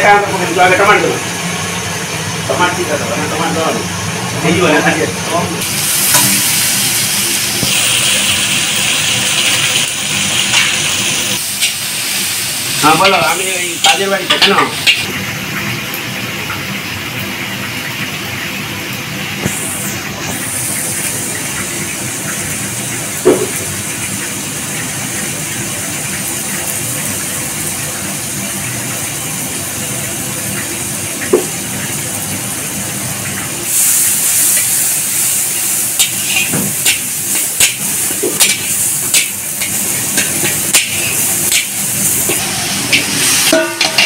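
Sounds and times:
masala sizzling in iron pan: 5.6 - 17.4, 19.4 - 29.7, 33.6 - 44.0
spatula scraping and clacking pan: 6.1 - 6.4, 36.0 - 44.0.

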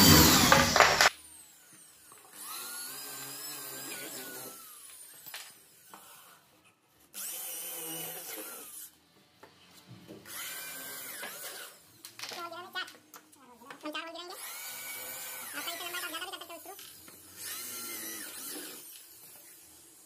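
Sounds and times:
electric drill whining: 0.0 - 6.5, 7.2 - 9.0, 10.3 - 12.3, 14.4 - 20.0.

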